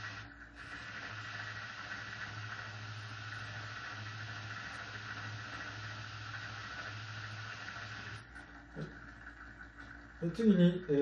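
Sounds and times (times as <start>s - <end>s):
brush hissing on wet record: 0.0s - 8.2s
motor humming: 0.0s - 11.0s.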